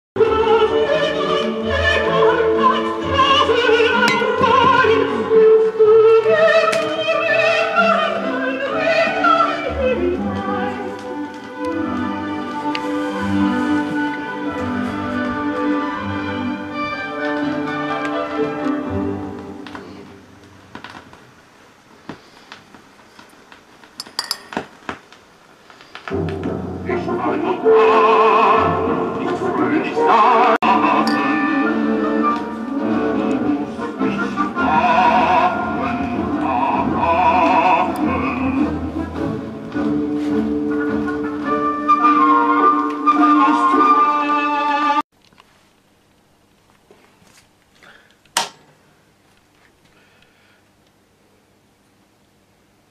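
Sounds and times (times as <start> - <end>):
opera singing with vibrato: 0.2 - 13.4, 26.8 - 39.6, 41.7 - 45.0
music: 0.2 - 21.1, 26.0 - 45.0
orchestral accompaniment: 0.3 - 6.6, 7.6 - 19.8, 26.4 - 45.0
small objects clinking: 24.0 - 24.7.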